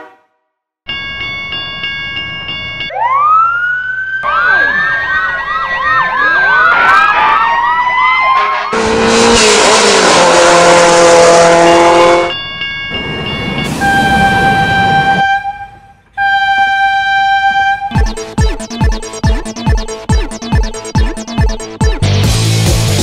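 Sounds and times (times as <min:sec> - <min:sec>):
long blaring horn: 0:00.0 - 0:00.5, 0:08.3 - 0:12.3, 0:13.6 - 0:18.4
level crossing warning bell: 0:00.9 - 0:03.2, 0:11.4 - 0:20.6
sirens wailing and yelping: 0:02.9 - 0:08.9, 0:11.5 - 0:22.1.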